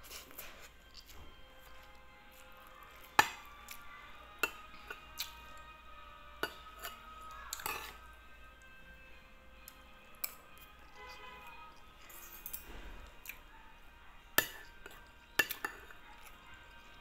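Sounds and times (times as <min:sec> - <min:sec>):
cutlery clinking on a ceramic plate: 0:06.4 - 0:08.0, 0:14.4 - 0:16.0.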